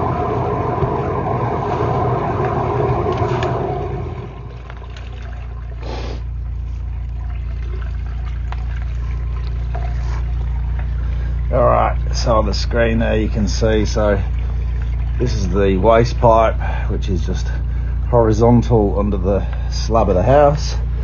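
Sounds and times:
motor humming low: 0:00.0 - 0:21.0
water jet hissing in pipe: 0:05.8 - 0:06.4.

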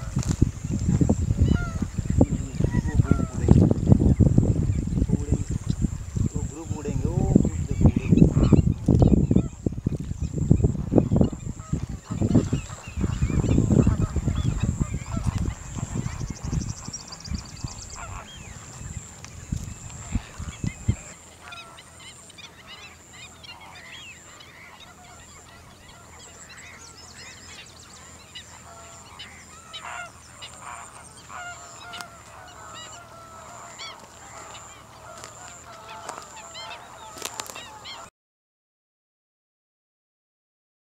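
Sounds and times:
wind buffeting microphone: 0:00.0 - 0:21.6
flamingos honking: 0:00.0 - 0:38.1.

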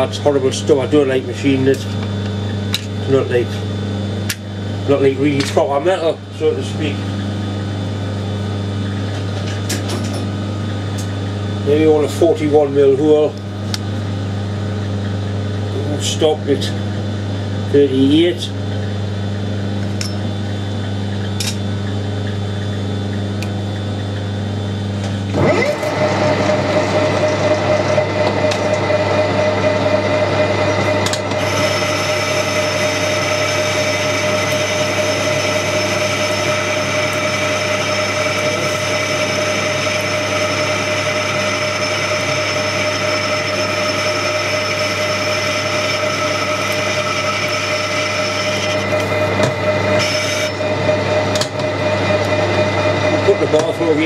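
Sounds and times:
lathe motor humming: 0:00.0 - 0:54.0
cutting tool whine: 0:22.3 - 0:54.0.

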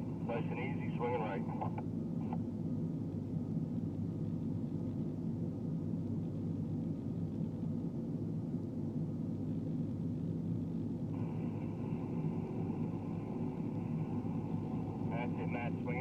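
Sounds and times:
steady high-pitched tone: 0:11.1 - 0:16.0
crane diesel engine running: 0:11.2 - 0:16.0.

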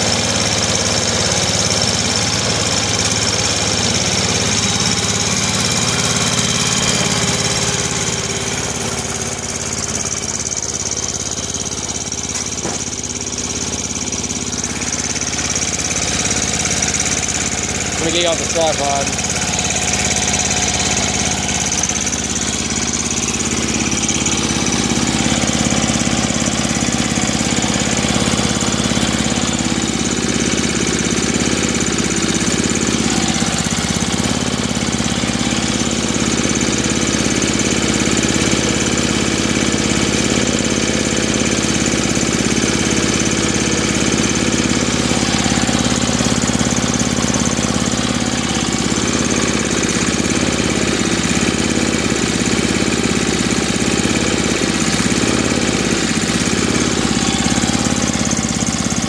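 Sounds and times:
snowblower engine running: 0:00.0 - 0:59.0.

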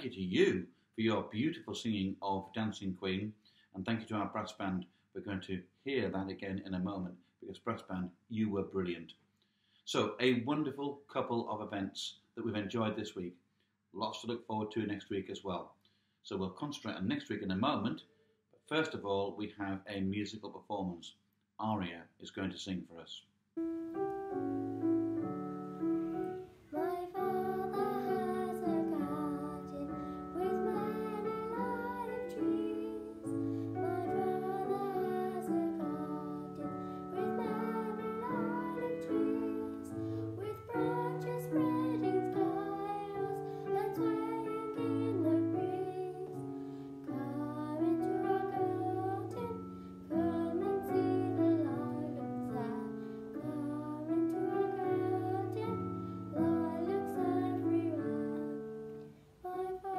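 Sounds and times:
piano accompaniment: 0:23.6 - 0:59.2
girl singing: 0:25.2 - 0:59.9.

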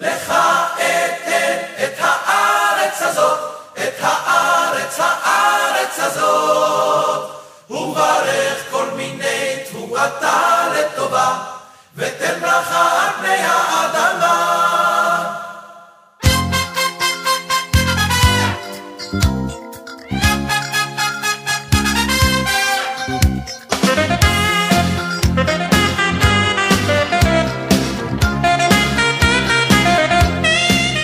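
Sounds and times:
a cappella group singing: 0:00.0 - 0:16.1
singers breathing: 0:07.3 - 0:07.7, 0:11.6 - 0:12.0.

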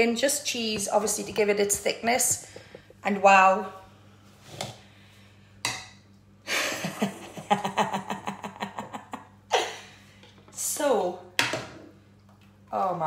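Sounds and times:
woman laughing: 0:06.5 - 0:10.0.

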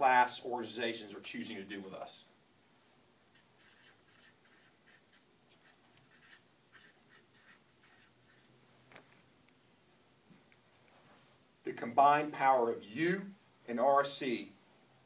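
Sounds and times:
faint light scratches: 0:03.3 - 0:09.3.

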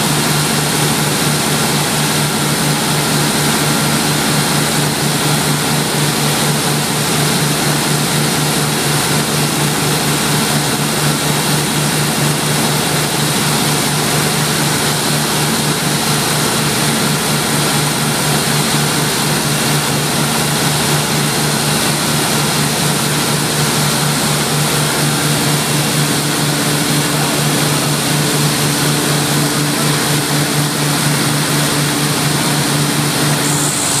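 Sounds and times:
diesel generator droning: 0:00.0 - 0:34.0
hissing cooling air: 0:14.0 - 0:34.0.

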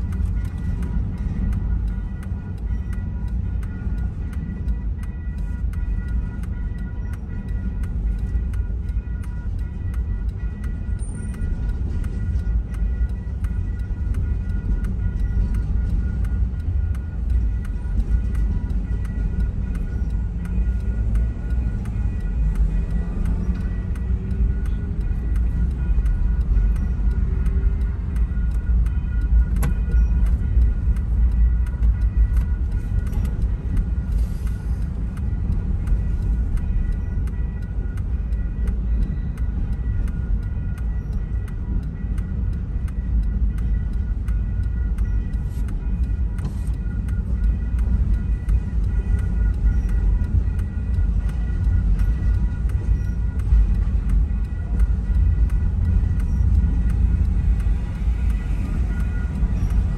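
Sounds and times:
crossing warning bell ringing: 0:00.0 - 0:59.9
freight train rumbling: 0:00.0 - 0:59.9.

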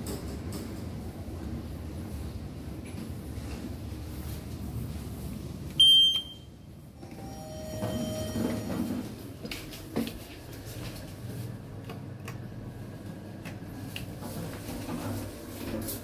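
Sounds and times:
low electronic tone: 0:05.8 - 0:09.1.

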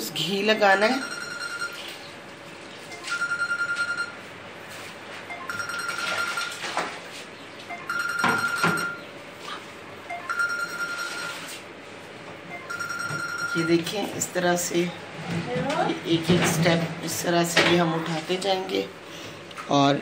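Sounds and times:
warbling phone ringtone: 0:00.2 - 0:02.1, 0:02.9 - 0:04.2, 0:05.3 - 0:06.6, 0:07.7 - 0:09.1, 0:10.1 - 0:11.6, 0:12.5 - 0:14.1.

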